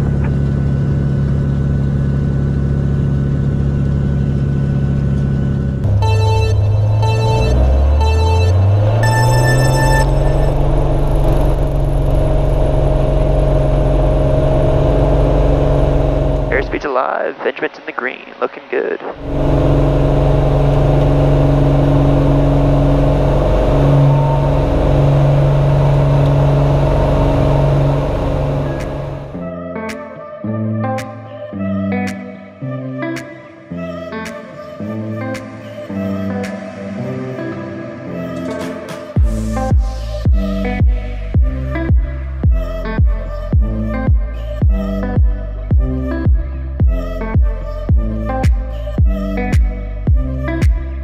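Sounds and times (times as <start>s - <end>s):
propeller airplane engine drone: 0.0s - 29.4s.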